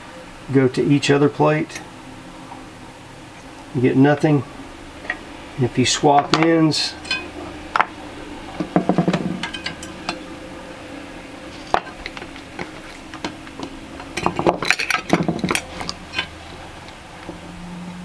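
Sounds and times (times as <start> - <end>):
test leads clicking on metal plates: 8.6 - 10.2.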